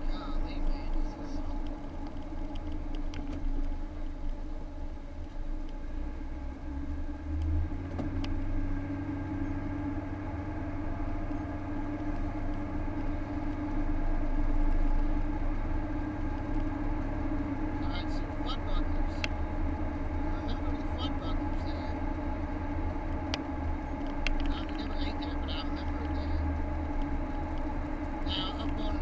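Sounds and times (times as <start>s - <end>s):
car engine and road drone: 0.0s - 29.0s.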